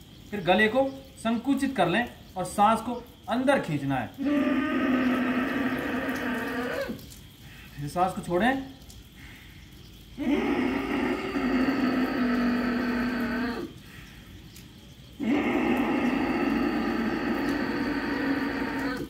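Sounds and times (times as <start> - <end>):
throaty breathing: 9.2 - 14.4.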